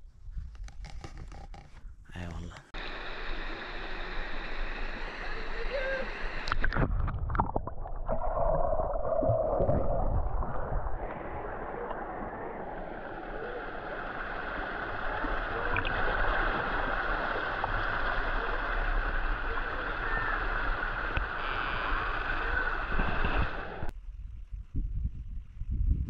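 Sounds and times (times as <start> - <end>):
water sloshing and splashing: 6.6 - 18.4
small waterfall splashing: 11.4 - 23.3.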